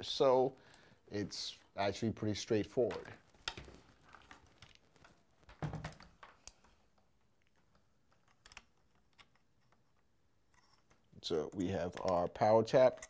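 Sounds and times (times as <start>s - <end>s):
small clicks and knocks: 2.8s - 13.0s.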